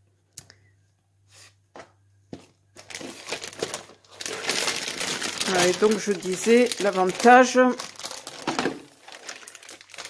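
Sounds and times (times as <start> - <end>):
plastic bag crinkling: 2.8 - 10.0.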